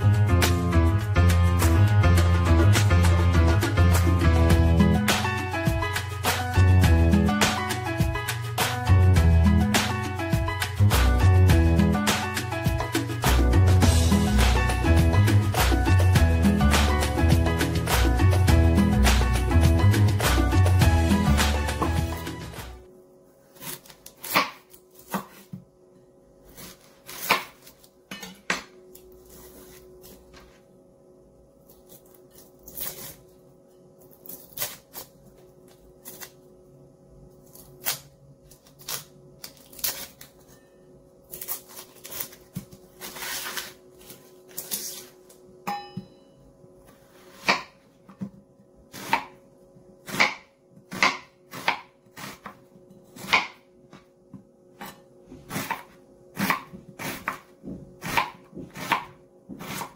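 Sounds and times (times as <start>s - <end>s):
onion skin rustling: 29.1s - 30.5s, 31.6s - 33.4s, 37.4s - 40.5s, 41.3s - 45.3s.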